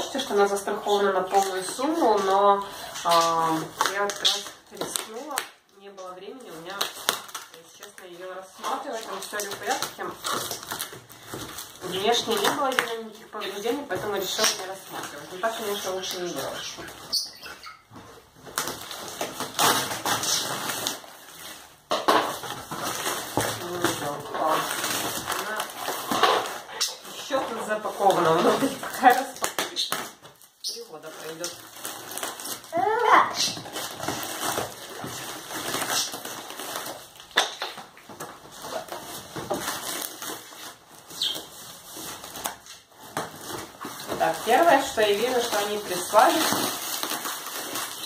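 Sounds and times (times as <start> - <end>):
packing paper rustling: 0.0 - 48.0.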